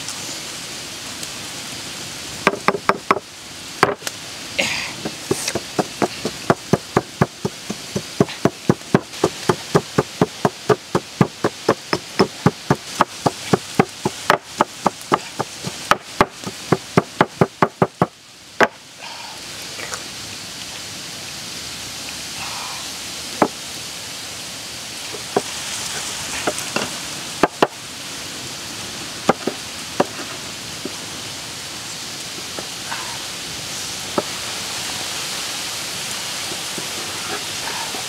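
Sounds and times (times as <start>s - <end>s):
pestle pounding in stone mortar: 2.5s - 3.2s, 5.1s - 18.1s.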